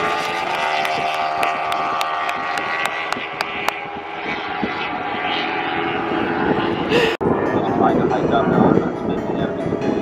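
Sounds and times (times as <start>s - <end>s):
racing motorcycles at high revs: 0.0s - 7.2s.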